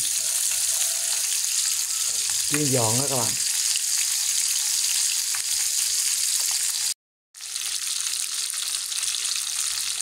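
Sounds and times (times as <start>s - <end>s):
fish frying in hot oil: 0.0s - 10.0s.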